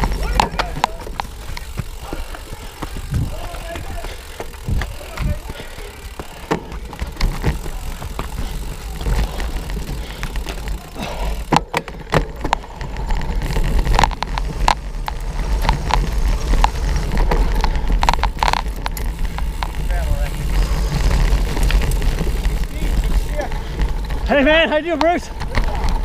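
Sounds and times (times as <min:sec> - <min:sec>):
bike rattling over bumpy ground: 0:00.0 - 0:26.0
wind rumble on microphone: 0:03.0 - 0:04.0, 0:04.6 - 0:05.5.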